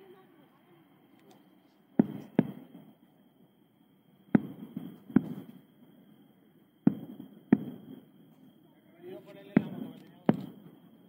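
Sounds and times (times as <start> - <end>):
distant fireworks bangs: 1.9 - 3.5, 4.2 - 11.0.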